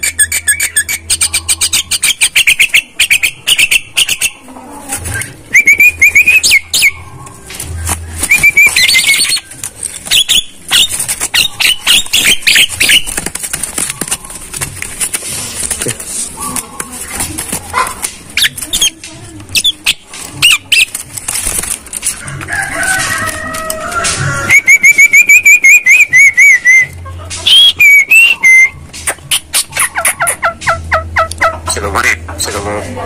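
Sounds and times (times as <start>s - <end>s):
myna chattering and whistling: 0.0s - 14.6s, 18.3s - 21.0s, 24.4s - 32.6s.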